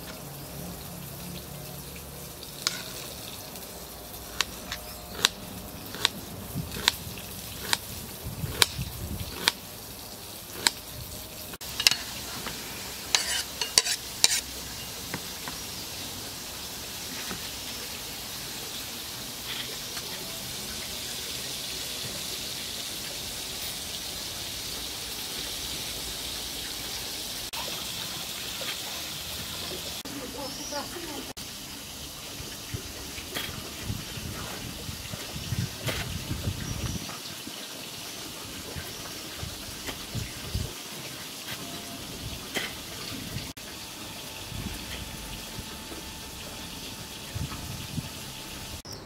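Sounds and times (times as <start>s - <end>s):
knife clicks and scrapes: 4.3s - 7.0s, 7.6s - 7.8s, 8.5s - 9.6s, 10.6s - 10.8s, 13.1s - 14.5s
steady hiss: 7.6s - 20.1s.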